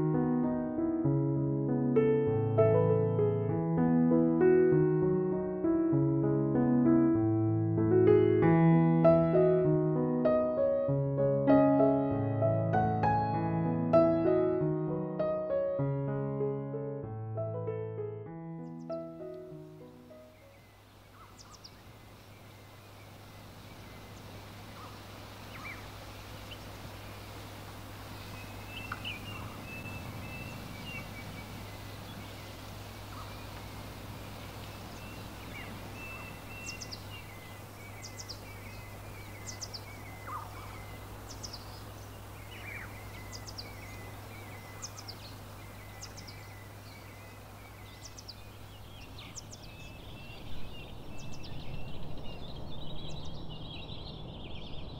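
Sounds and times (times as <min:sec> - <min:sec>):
small birds chirping and twittering: 0:18.6 - 0:54.9
low outdoor rumble: 0:20.9 - 0:54.9.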